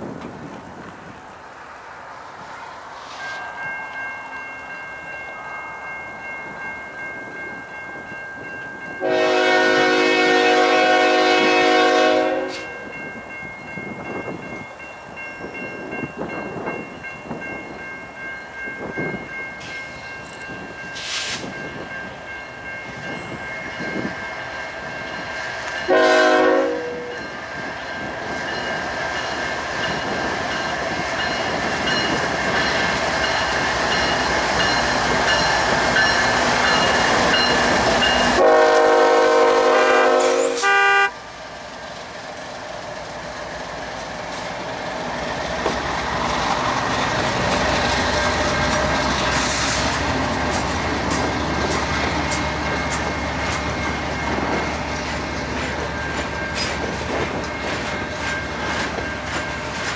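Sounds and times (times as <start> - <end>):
freight train rumbling past: 0.0 - 59.9
train horn blasts: 9.0 - 12.8, 25.8 - 27.3, 38.3 - 41.2.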